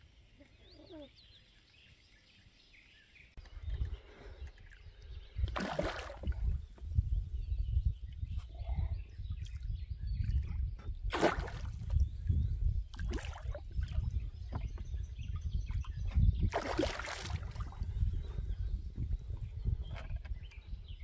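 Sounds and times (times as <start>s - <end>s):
wind rumble on microphone: 3.4s - 21.0s
water splashing: 5.5s - 6.6s, 11.1s - 11.9s, 12.9s - 14.1s, 16.5s - 17.8s.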